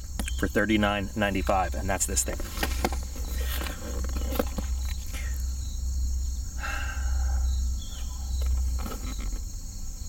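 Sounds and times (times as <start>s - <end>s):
insects trilling: 0.0s - 10.0s
rustling: 2.2s - 5.5s, 8.0s - 9.6s.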